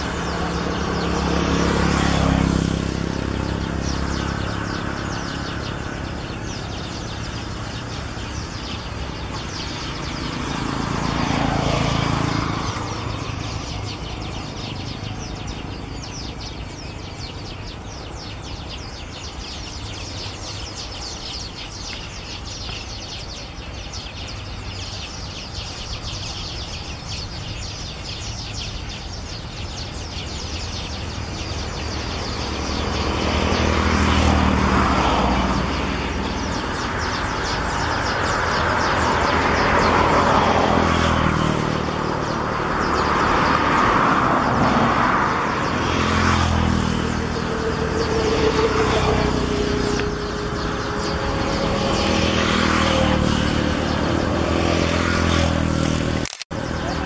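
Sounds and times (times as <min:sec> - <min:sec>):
steady outdoor rush: 0:00.0 - 0:57.0
vehicle passing by: 0:00.0 - 0:57.0
dense high chirping: 0:46.6 - 0:55.9.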